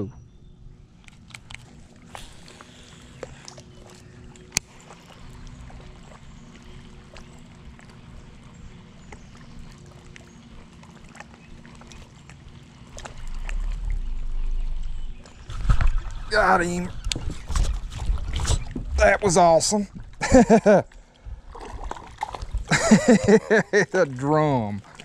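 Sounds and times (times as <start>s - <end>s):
boat on water rumbling: 0.0s - 25.0s
faint steady hum: 0.1s - 17.2s.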